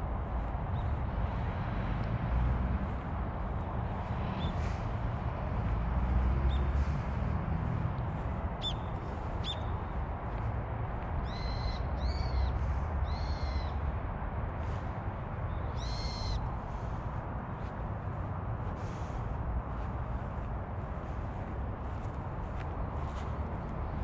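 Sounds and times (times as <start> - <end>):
steady low rumble: 0.0 - 11.2.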